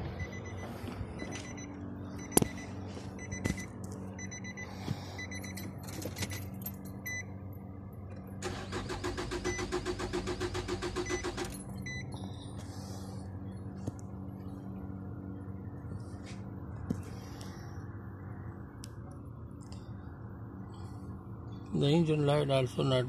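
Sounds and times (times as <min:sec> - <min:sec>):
engine cranking on starter: 0:08.4 - 0:11.7.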